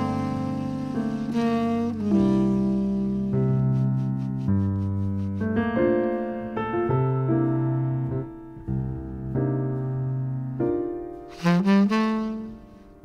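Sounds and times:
jazz piano chords: 0.0 - 13.0.

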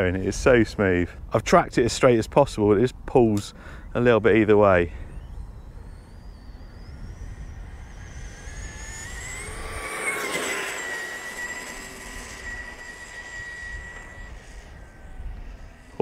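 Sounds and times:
electric toy car motor whining: 4.9 - 16.0.

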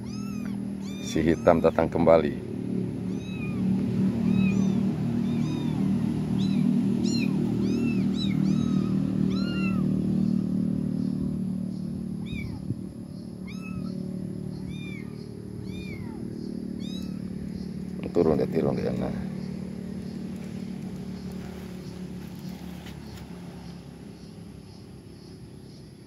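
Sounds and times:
kittens meowing: 0.0 - 2.2, 2.9 - 10.3, 12.1 - 22.7.

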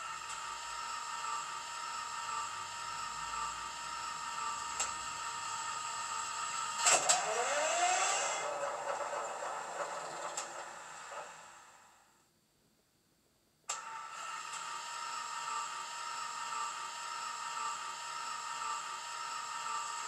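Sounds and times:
engine cranking whine: 6.2 - 12.0.

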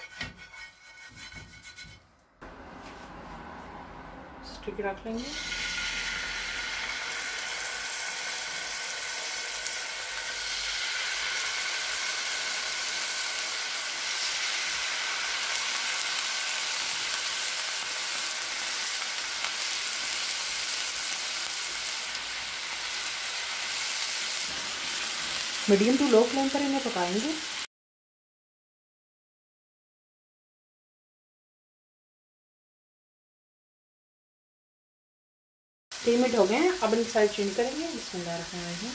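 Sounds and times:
skewers sizzling in oil: 5.1 - 27.7, 35.9 - 38.9.

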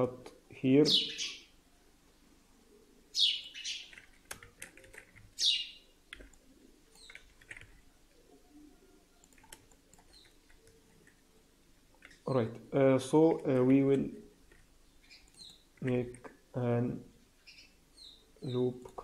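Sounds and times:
bird chirping: 0.9 - 4.1, 5.3 - 6.0, 6.6 - 7.4, 10.0 - 11.4, 14.7 - 15.9, 17.4 - 18.7
keyboard and mouse clicks: 3.9 - 5.3, 6.1 - 7.8, 9.2 - 11.2, 11.9 - 12.3, 14.5 - 16.4.

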